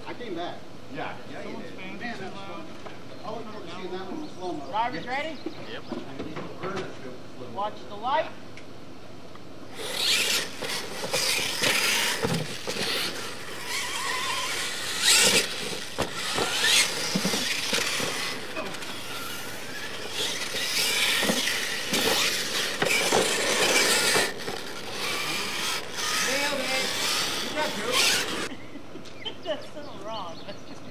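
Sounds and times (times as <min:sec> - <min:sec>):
electric motors whining: 0:09.6 - 0:28.6
tyres scrabbling on dirt: 0:09.7 - 0:28.5.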